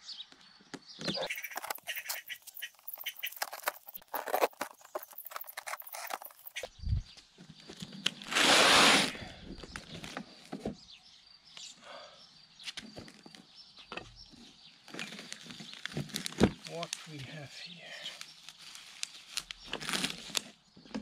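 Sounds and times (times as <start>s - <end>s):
cardboard rasping: 1.3s - 6.7s
packaging rustling: 1.3s - 6.7s, 14.9s - 17.2s, 18.0s - 20.5s.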